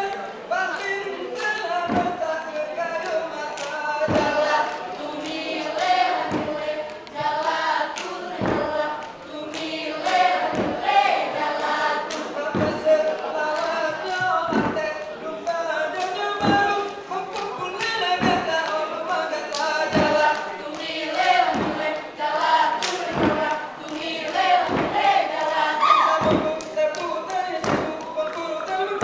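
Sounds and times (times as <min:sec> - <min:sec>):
group singing in unison: 0:00.0 - 0:29.0
body percussion thumps and slaps: 0:01.8 - 0:02.4, 0:03.6 - 0:15.1, 0:16.1 - 0:16.9, 0:17.6 - 0:18.8, 0:19.5 - 0:22.1, 0:22.8 - 0:29.0.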